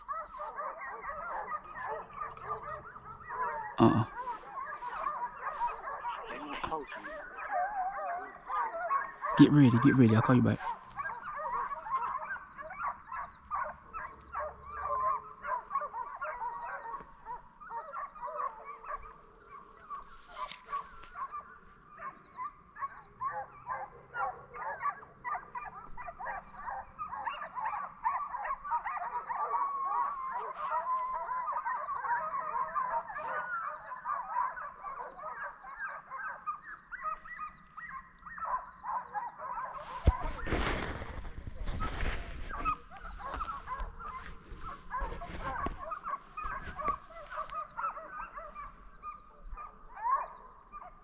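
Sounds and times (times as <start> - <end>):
hounds baying: 0.0 - 51.0.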